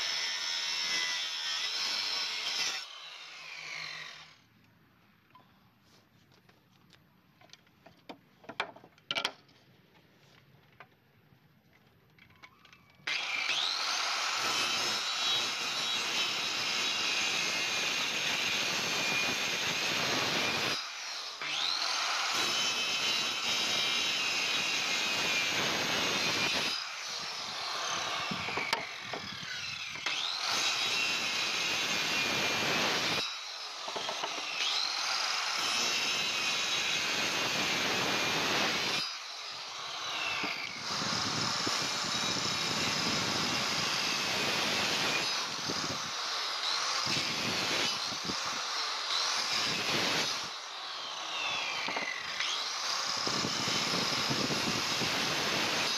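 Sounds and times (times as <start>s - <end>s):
circular saw cutting wood: 0.0s - 4.5s, 13.0s - 55.9s.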